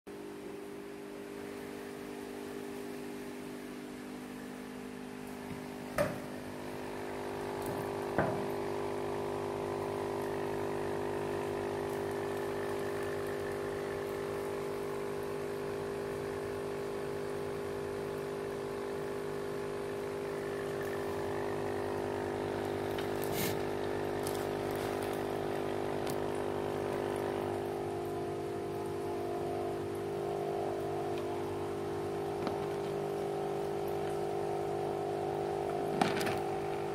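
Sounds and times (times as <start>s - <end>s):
aquarium pump humming: 0.1s - 36.9s
water trickling: 20.2s - 36.9s.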